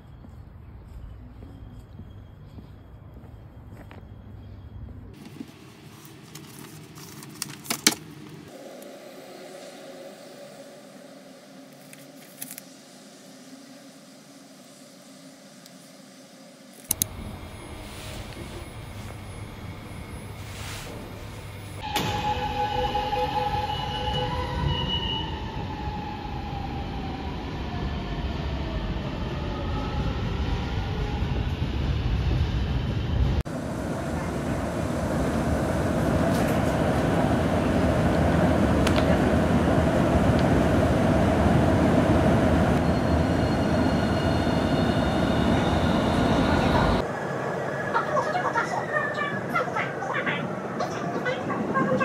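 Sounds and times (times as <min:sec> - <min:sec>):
train rumbling: 0:00.0 - 0:52.0
faint high whine: 0:08.2 - 0:27.5, 0:29.4 - 0:49.2
train running rumble: 0:16.9 - 0:23.5, 0:30.6 - 0:47.2.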